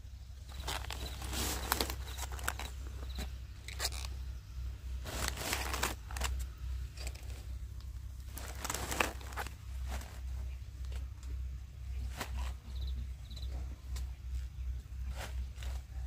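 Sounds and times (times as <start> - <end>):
crisp rustling and tearing: 0.5 - 4.1, 5.0 - 6.4, 8.2 - 10.3.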